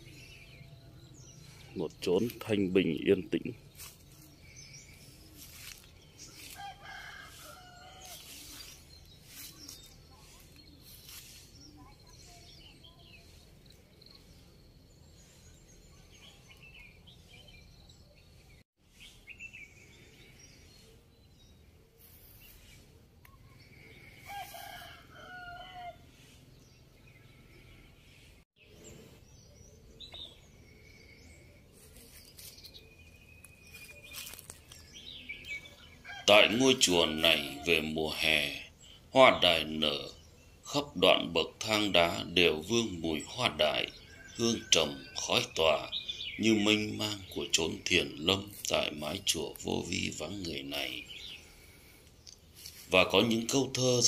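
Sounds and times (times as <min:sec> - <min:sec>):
small birds chirping: 0:00.0 - 0:54.0
rooster crowing: 0:06.5 - 0:08.3, 0:24.2 - 0:26.0.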